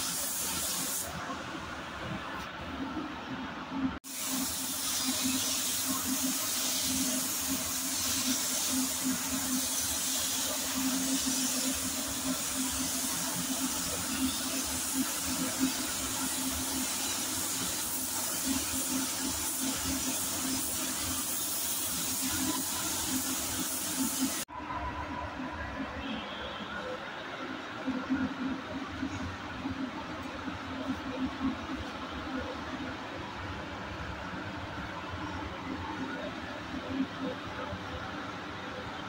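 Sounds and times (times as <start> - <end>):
spray gun hissing: 0.0 - 1.1, 4.0 - 24.5.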